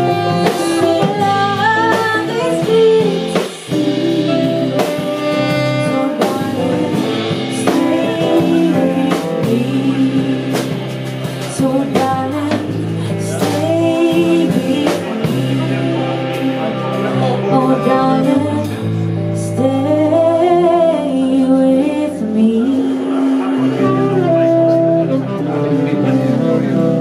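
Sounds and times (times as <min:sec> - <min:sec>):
woman singing: 0:00.0 - 0:24.2
live band playing soul ballad: 0:00.0 - 0:27.0.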